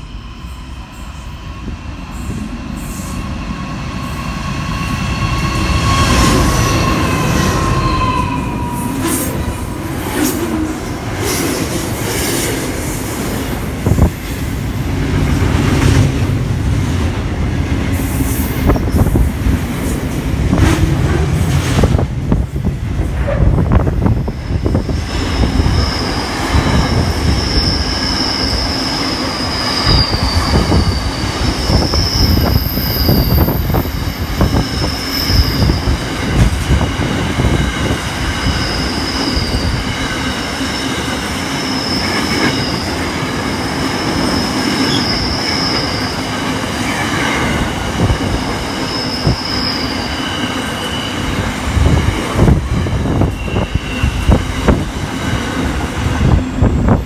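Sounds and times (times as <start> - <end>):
high-pitched wheel squeal: 0.4 - 9.4, 24.3 - 36.2, 38.4 - 46.4, 48.3 - 51.5, 53.1 - 54.5
train wagons rumbling: 1.2 - 57.0.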